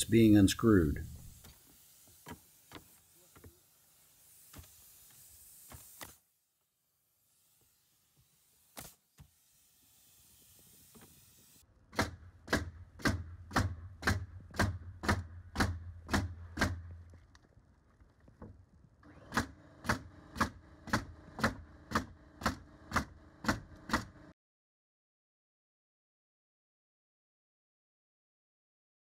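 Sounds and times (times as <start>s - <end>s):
nail gun firing: 4.3s - 6.2s, 8.6s - 17.0s, 19.0s - 24.3s.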